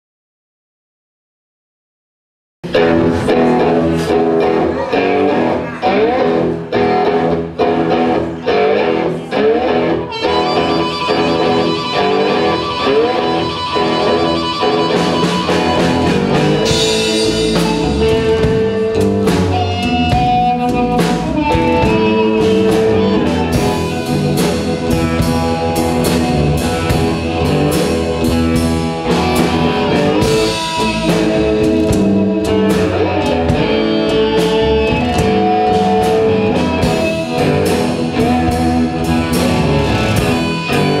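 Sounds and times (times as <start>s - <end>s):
drum kit: 2.6s - 41.0s
plucked guitars: 2.6s - 41.0s
harmonica holding long notes: 10.0s - 18.1s.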